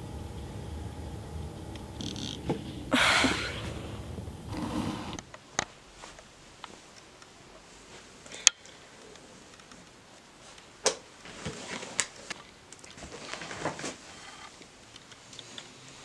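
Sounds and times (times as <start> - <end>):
rustling of fabric and paper: 4.5 - 16.0.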